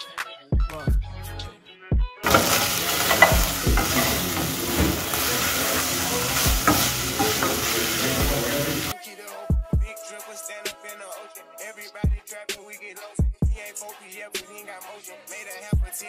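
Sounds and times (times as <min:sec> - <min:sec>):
hip hop music: 0:00.0 - 0:16.0
spoon knocking against pot: 0:02.2 - 0:05.8
wooden spoon scraping pot: 0:02.2 - 0:08.9
food sizzling in a pot: 0:02.2 - 0:09.0.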